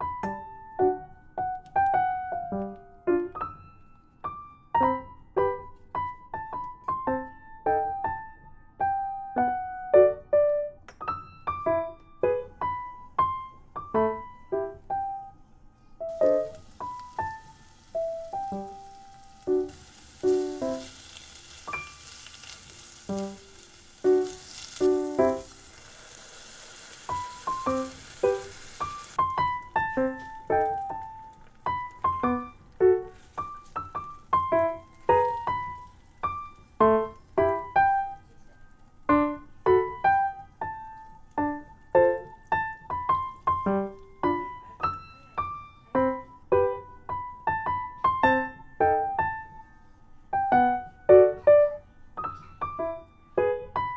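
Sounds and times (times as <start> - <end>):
piano music: 0.0 - 53.9
faint sizzle of meat frying: 16.0 - 49.6.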